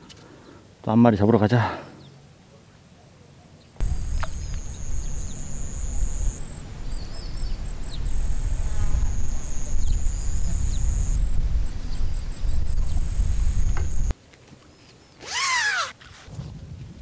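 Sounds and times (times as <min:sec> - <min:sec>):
insect trilling: 0:03.8 - 0:14.1, 0:15.2 - 0:16.3
wind buffeting microphone: 0:03.8 - 0:14.1.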